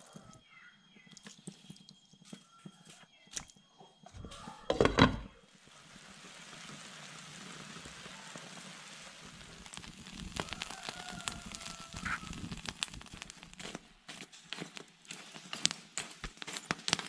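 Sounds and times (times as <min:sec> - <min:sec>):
soup boiling and bubbling: 0:00.0 - 0:02.4, 0:04.8 - 0:17.0.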